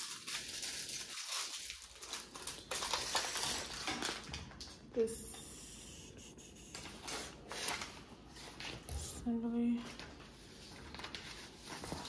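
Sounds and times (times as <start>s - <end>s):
plastic bags crinkling: 0.0s - 4.9s.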